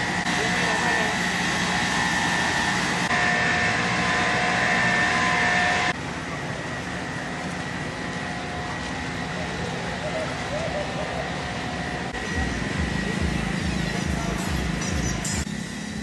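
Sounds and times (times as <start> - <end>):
engine-driven water pumps running: 0.0 - 16.0
high even whine: 0.0 - 16.0.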